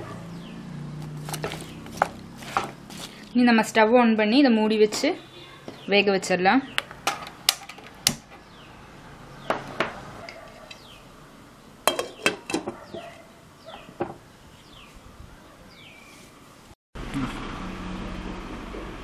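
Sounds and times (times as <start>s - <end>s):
glass lid clinking on pot: 11.9s - 12.7s.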